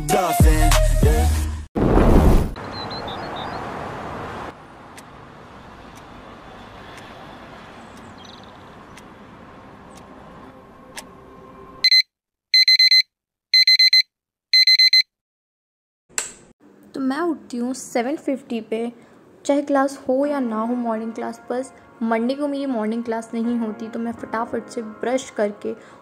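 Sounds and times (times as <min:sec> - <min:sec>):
phone alarm beeping: 0:11.8 - 0:15.1.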